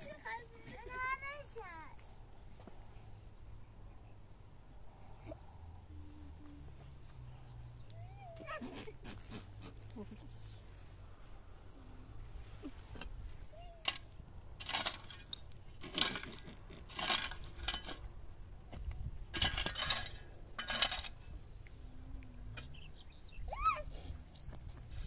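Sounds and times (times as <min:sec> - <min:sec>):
metal kitchenware clinking: 0:19.4 - 0:21.2.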